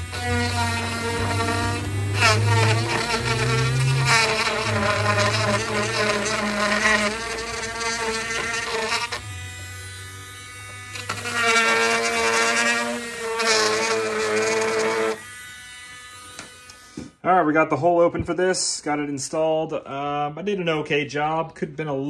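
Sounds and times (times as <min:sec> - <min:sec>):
rotary tool grinding plastic: 0:00.0 - 0:17.2.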